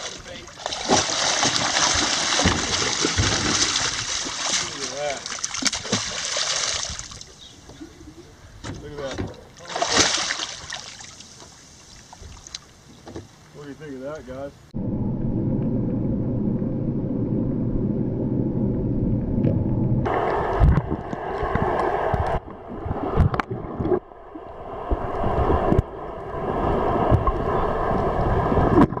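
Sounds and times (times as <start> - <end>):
underwater low hum: 0.0 - 6.1, 14.5 - 29.0
water rushing: 0.0 - 7.4, 9.4 - 13.7
knocks and bumps: 0.9 - 4.0.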